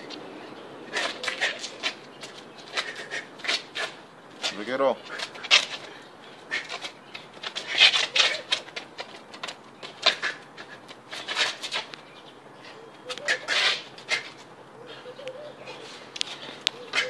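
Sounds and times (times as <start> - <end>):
sharp hissing breaths: 2.7 - 3.9, 5.0 - 6.8.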